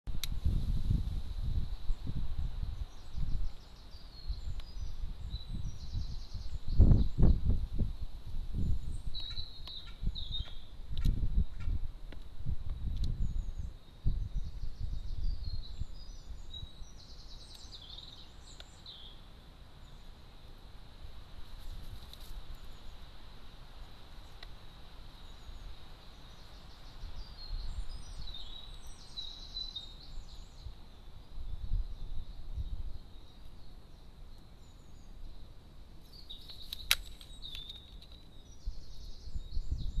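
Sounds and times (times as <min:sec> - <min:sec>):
songbird singing: 0:00.1 - 0:40.0
small birds chirping: 0:00.2 - 0:07.8, 0:08.5 - 0:40.0.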